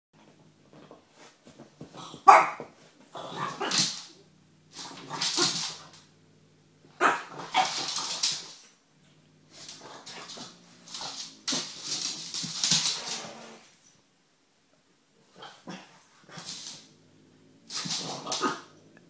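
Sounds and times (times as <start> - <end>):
dog barking and whining: 2.1 - 2.7, 6.9 - 8.0.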